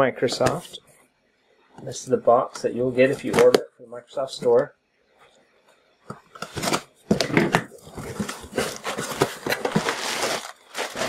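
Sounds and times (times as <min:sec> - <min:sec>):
cardboard flaps folding: 0:06.4 - 0:11.0
plastic air pillows crinkling: 0:07.7 - 0:11.0.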